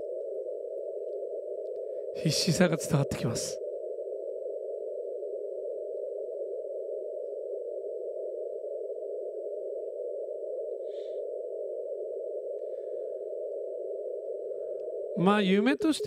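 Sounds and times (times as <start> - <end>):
faint morse code: 2.2 - 3.6, 15.1 - 16.0
radio band noise hiss: 2.2 - 3.6, 15.2 - 16.0.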